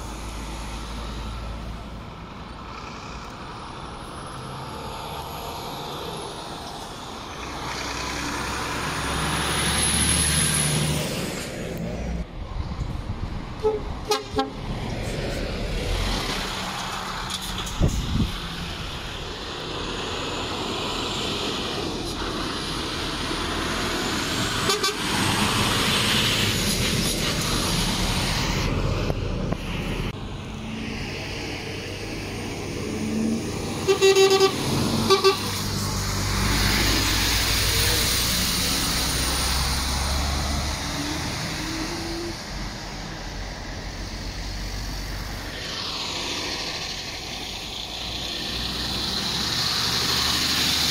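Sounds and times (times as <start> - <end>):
lorry diesel engines accelerating: 0.0 - 50.9
horn short blasts: 33.8 - 35.6.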